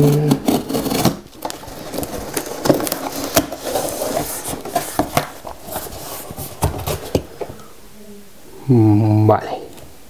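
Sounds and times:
cardboard box being opened: 0.0 - 7.3.

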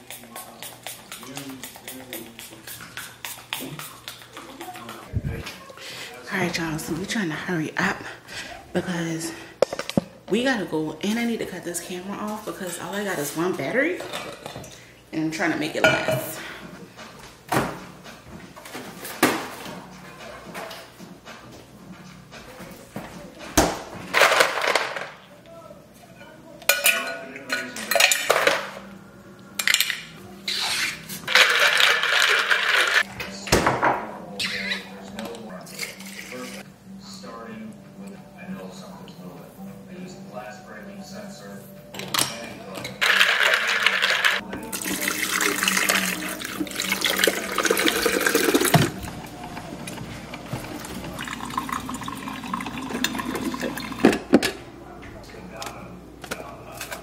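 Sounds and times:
water running from a tap: 44.7 - 49.0, 50.8 - 54.0.

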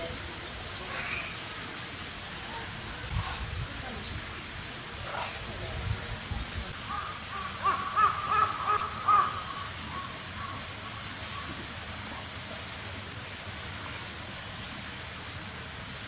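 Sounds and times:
steady background hiss: 0.0 - 16.0
bird calling harshly: 6.9 - 10.6.

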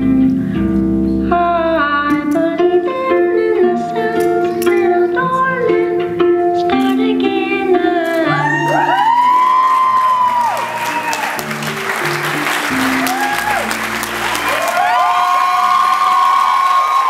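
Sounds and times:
plucked string melody: 0.0 - 8.8
person singing: 1.2 - 9.6.

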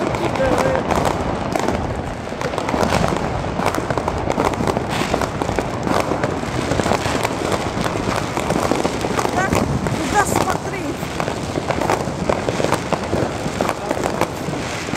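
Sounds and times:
firecrackers crackling: 0.0 - 14.9.

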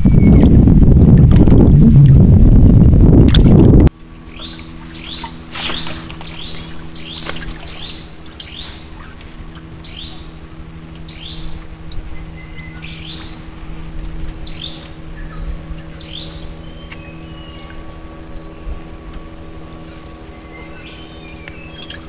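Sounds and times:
low hum: 0.0 - 22.0
bird chirping: 4.3 - 9.2, 9.8 - 10.4, 11.0 - 13.5, 14.4 - 18.8, 19.8 - 22.0.

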